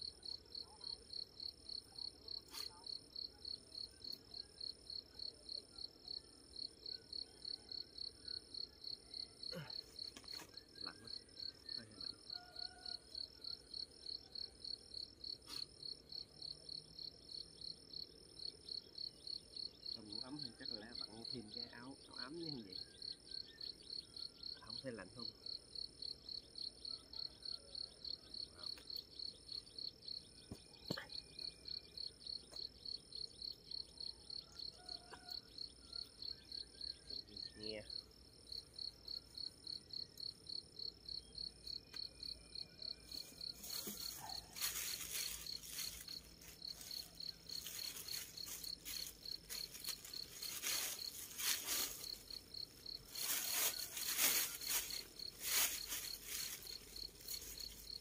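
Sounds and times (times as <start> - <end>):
cricket chirping: 0.0 - 58.0
plastic bag crinkling: 43.6 - 58.0.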